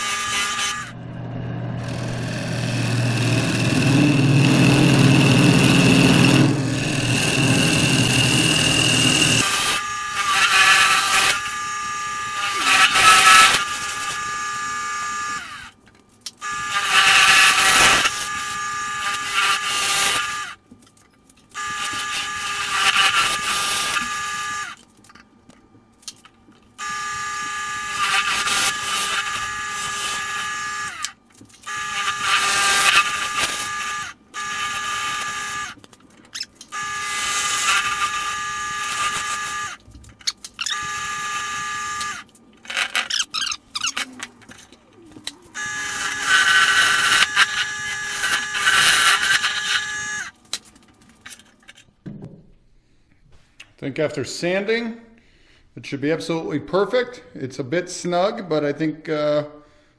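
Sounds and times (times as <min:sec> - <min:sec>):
turning tool cutting wood: 0:00.0 - 0:15.8, 0:16.4 - 0:20.6, 0:21.5 - 0:24.8, 0:26.8 - 0:50.5
wood lathe motor whine: 0:00.0 - 0:15.8, 0:16.4 - 0:20.6, 0:21.6 - 0:24.8, 0:26.8 - 0:35.8, 0:36.7 - 0:39.8, 0:40.6 - 0:43.1, 0:45.2 - 0:50.4.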